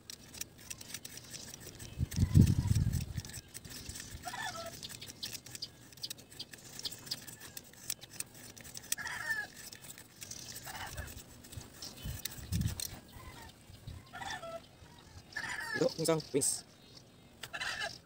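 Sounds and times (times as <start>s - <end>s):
knife shaving bamboo: 0.0s - 13.4s
chicken clucking: 4.2s - 5.2s, 12.7s - 15.9s.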